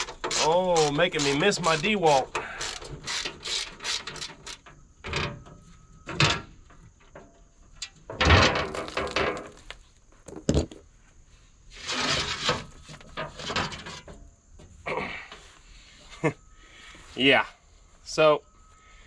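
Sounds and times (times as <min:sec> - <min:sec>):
metal panel sliding: 0:11.7 - 0:14.2
metal scraping: 0:11.7 - 0:14.4.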